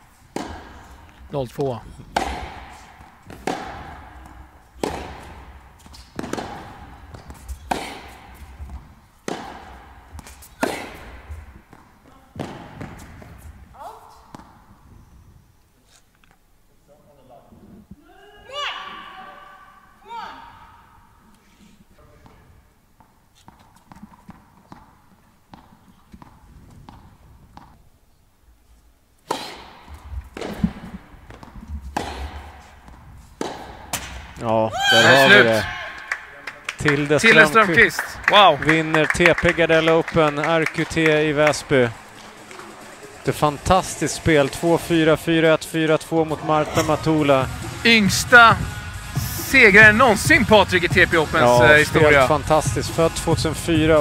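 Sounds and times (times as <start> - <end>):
footsteps: 0.0 - 14.6
tennis ball hit by rackets: 0.3 - 1.2, 2.1 - 13.5, 23.0 - 27.8, 29.2 - 34.4
crowd cheering and shouting: 34.7 - 36.1.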